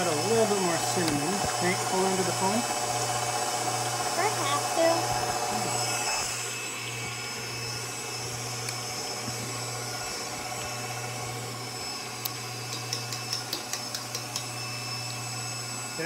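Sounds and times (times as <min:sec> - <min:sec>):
electric mixer motor running: 0:00.0 - 0:16.0.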